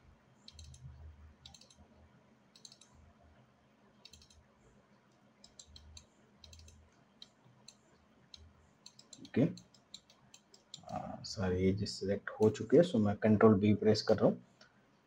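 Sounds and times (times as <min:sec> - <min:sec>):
faint low hum: 0:00.0 - 0:15.0
computer mouse clicks: 0:00.4 - 0:01.8, 0:02.5 - 0:03.0, 0:04.0 - 0:04.4, 0:05.1 - 0:11.0.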